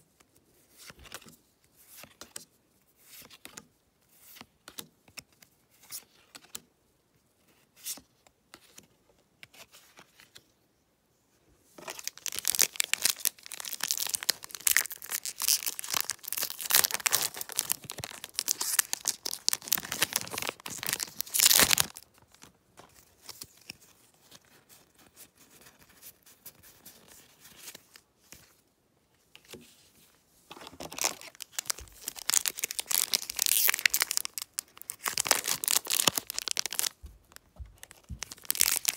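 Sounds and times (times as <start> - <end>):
foil wrapper crinkling and tearing: 11.8 - 22.4, 30.7 - 38.9.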